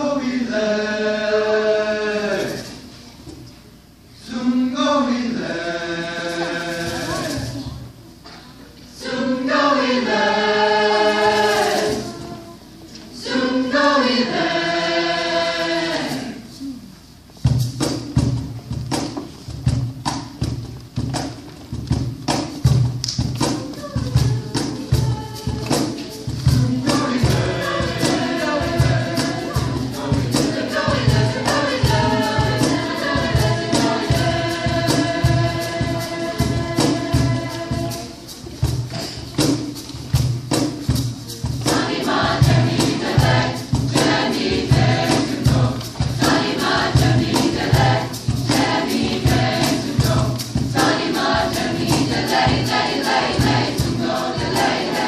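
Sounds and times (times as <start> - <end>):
choir singing: 0.0 - 2.8, 4.1 - 7.8, 8.9 - 16.7, 23.7 - 39.2, 41.4 - 55.0
percussion beat: 6.2 - 7.9, 9.9 - 12.5, 17.3 - 55.0.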